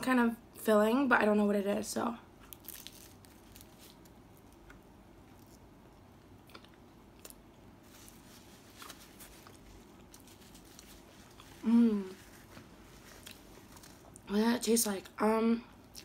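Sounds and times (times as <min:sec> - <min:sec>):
chewing pastry with soft crunches: 0:02.4 - 0:14.3, 0:15.8 - 0:16.0.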